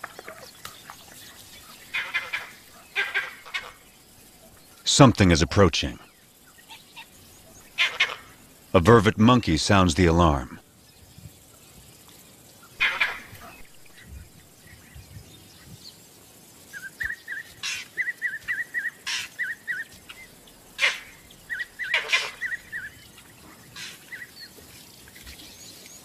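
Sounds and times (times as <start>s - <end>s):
monkey alarm calls: 1.8s - 3.8s, 6.6s - 8.4s, 12.7s - 14.0s, 16.7s - 24.5s.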